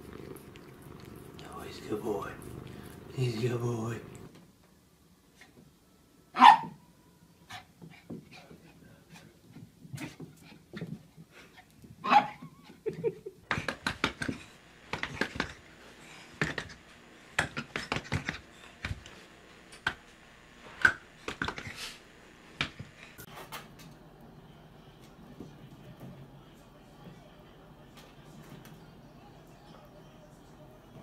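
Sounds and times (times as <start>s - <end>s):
dog yelp: 6.4s - 6.8s, 12.0s - 12.4s.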